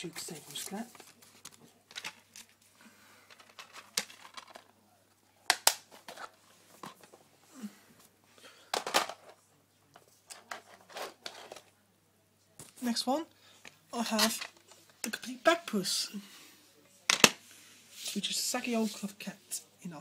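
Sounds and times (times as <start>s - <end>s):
plastic cases clicking and clattering: 1.0s - 2.5s, 3.2s - 4.7s, 5.5s - 7.2s, 8.7s - 9.4s.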